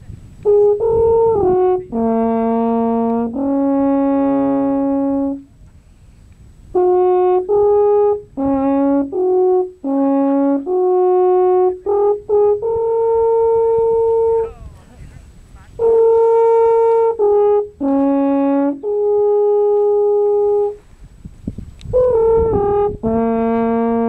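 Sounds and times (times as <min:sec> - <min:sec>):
alphorn playing slow melody: 0:00.4 - 0:05.5, 0:06.8 - 0:14.6, 0:15.8 - 0:20.8, 0:21.8 - 0:24.0.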